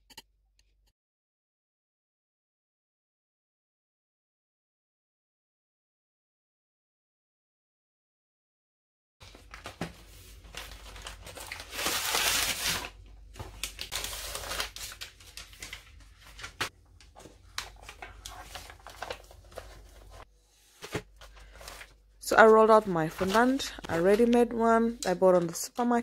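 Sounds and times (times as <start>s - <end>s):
paper crinkling and rustling: 9.2s - 26.0s.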